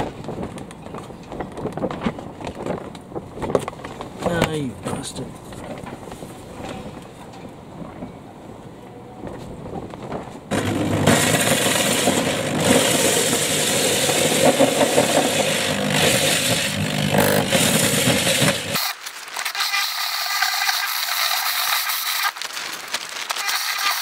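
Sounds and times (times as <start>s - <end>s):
power drill hole saw cutting: 13.9s - 22.3s.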